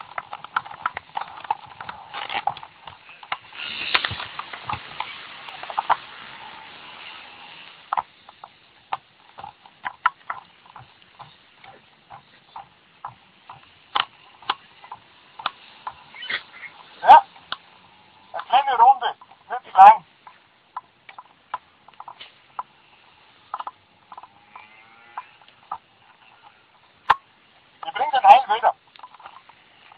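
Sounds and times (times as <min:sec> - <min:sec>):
rustling hiss: 0:00.0 - 0:09.3.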